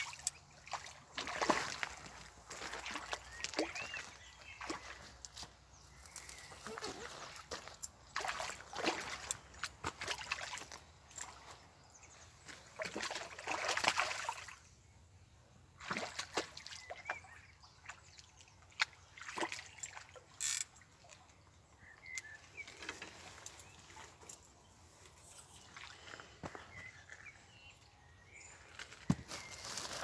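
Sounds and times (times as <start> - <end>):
fish splashing at the surface: 12.8 - 14.6, 15.8 - 17.2.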